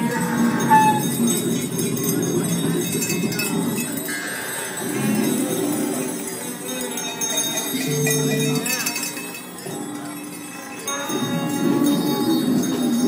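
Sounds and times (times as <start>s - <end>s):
steady high tone: 0.0s - 3.0s
experimental percussion music: 0.0s - 13.0s
jingles: 0.0s - 13.0s.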